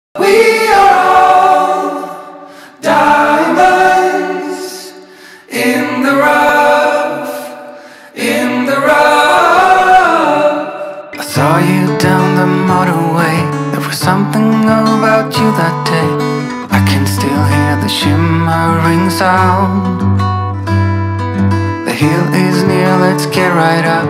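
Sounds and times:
wordless layered vocal harmonies: 0.2s - 24.0s.

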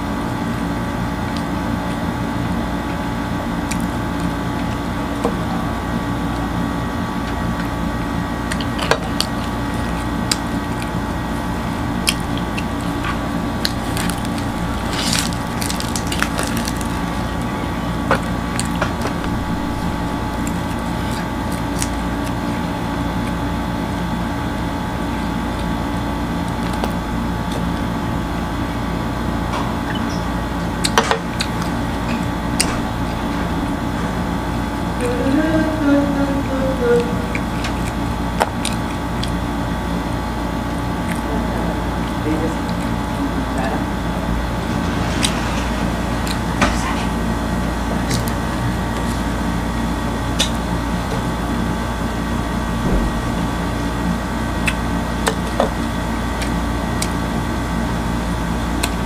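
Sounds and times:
steady hum: 0.0s - 59.0s
flatbread crust tearing and chewing: 8.4s - 23.5s, 37.4s - 39.7s.

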